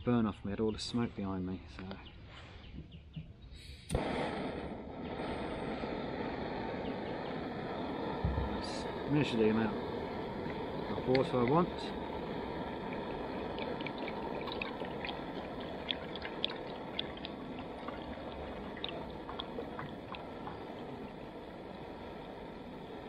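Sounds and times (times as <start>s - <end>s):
water pouring into metal cup: 9.2s - 21.9s.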